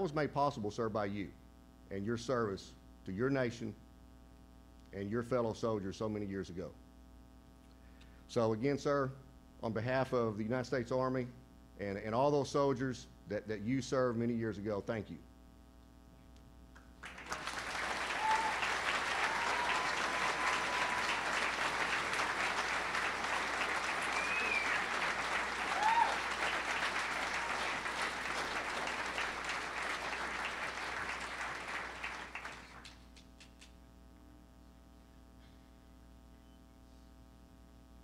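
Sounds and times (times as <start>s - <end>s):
audience applauding: 17.0s - 33.6s
calls from audience: 17.1s - 32.8s.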